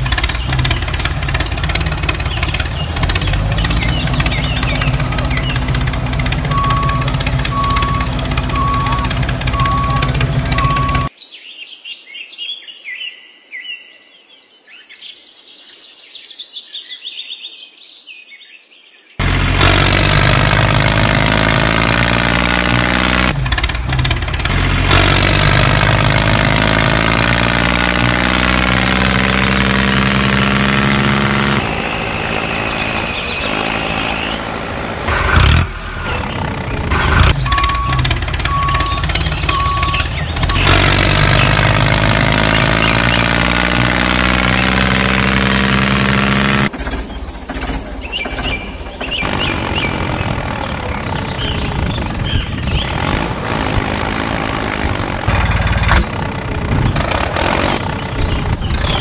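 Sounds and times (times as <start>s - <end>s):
small engine running: 0.0s - 11.1s, 19.2s - 59.0s
birds chirping: 0.0s - 59.0s.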